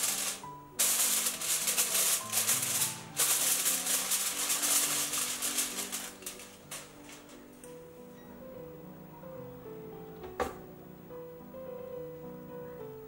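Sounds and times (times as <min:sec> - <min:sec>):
aluminium foil crinkling: 0:00.0 - 0:07.4
background music: 0:00.0 - 0:13.0.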